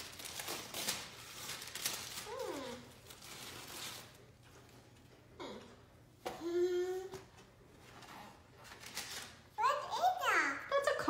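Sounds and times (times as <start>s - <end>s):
tissue paper rustling: 0.0s - 4.8s, 7.8s - 9.5s
toddler vocal sound: 6.3s - 7.3s.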